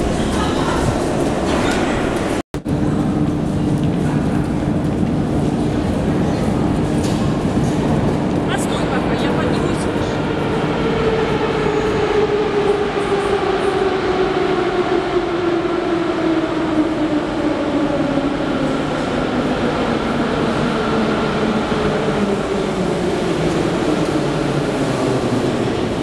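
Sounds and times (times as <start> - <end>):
metro train braking: 8.8 - 26.0.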